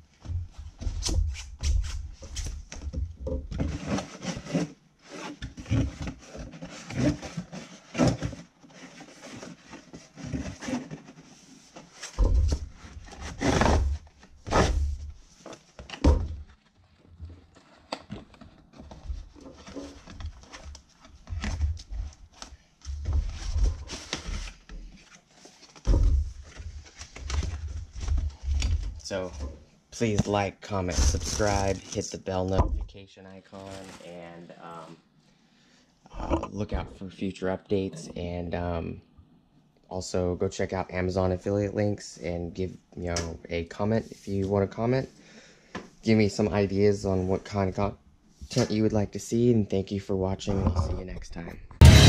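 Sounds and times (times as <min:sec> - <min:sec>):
cardboard and paper rustling: 0:03.6 - 0:29.4, 0:30.0 - 0:32.6, 0:33.5 - 0:34.4.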